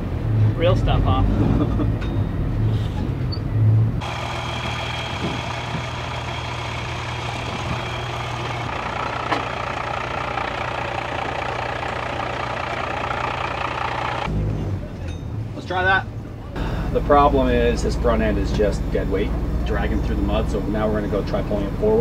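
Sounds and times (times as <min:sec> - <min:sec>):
bus engine idling: 0:04.0 - 0:15.4.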